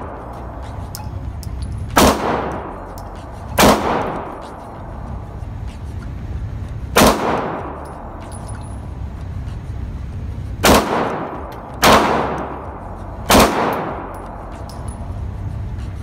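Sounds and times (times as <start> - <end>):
pistol shots echoing: 1.9 - 4.7, 7.0 - 8.0, 10.6 - 15.0.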